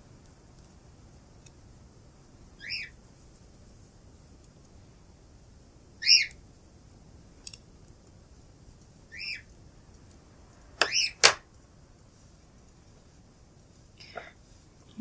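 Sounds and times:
cockatiel screams: 2.6s - 2.9s, 6.0s - 6.3s, 9.1s - 9.4s, 10.8s - 11.3s.

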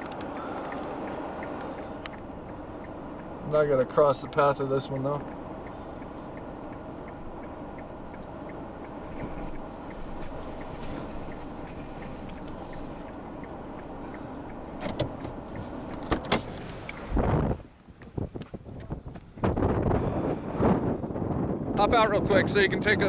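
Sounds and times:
faint regular ticking: 0.0s - 17.1s
car cabin road and engine noise: 0.0s - 23.0s
sharp clicks and knocks: 14.5s - 17.0s.

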